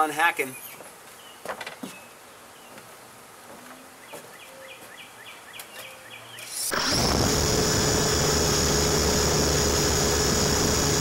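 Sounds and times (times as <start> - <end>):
bird chirping: 0.4 - 2.8, 3.8 - 6.7
electric motor whine and hum: 6.7 - 11.0.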